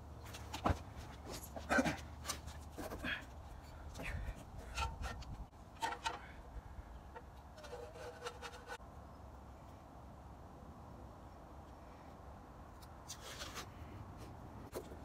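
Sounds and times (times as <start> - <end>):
tools and bicycle frame handled: 2.2 - 6.5, 7.1 - 8.8.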